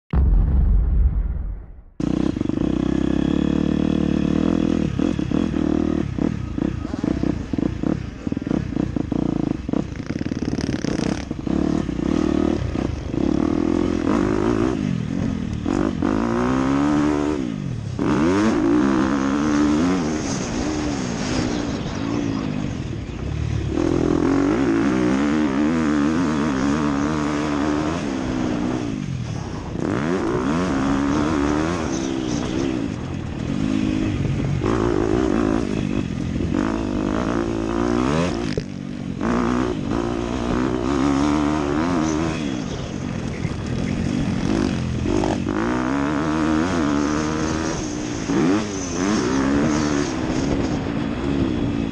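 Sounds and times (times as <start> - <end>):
dirt bike engine revving: 2.0 - 51.9.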